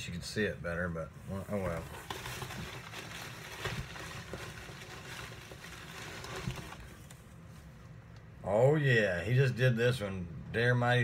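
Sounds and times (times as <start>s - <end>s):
rustling in cardboard box: 1.4s - 7.7s.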